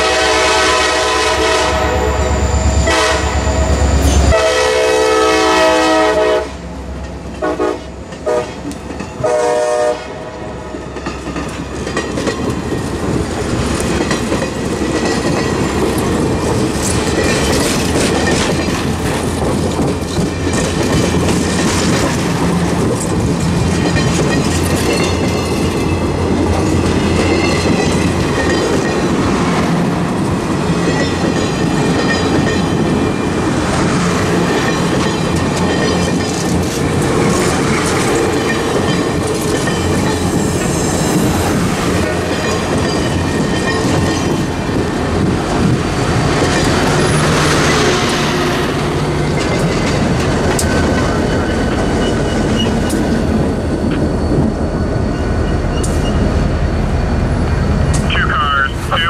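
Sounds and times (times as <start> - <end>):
wheels squealing against rails: 1.4 - 4.6, 45.9 - 58.0
train wheels clicking over rail joints: 8.0 - 9.2, 10.8 - 56.4.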